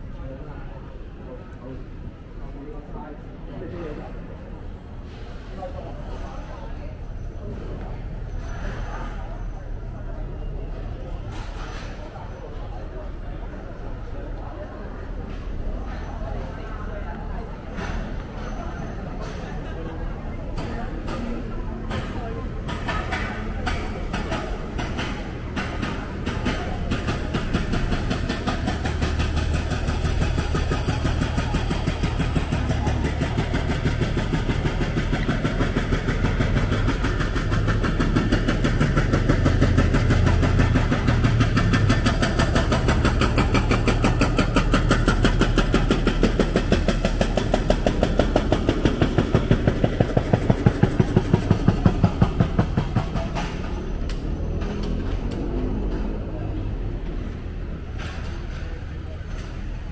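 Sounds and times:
vehicle engine pulsing hum: 21.9s - 59.9s.

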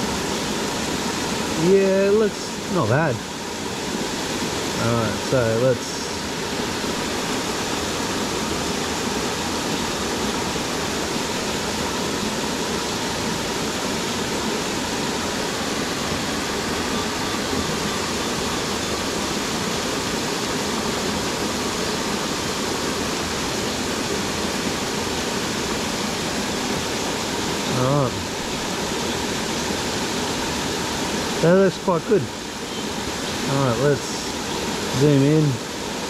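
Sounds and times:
waterfall rushing: 0.0s - 36.0s.

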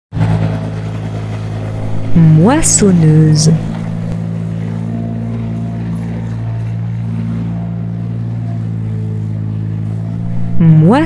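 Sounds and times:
combine harvester engine drone: 0.2s - 11.0s.

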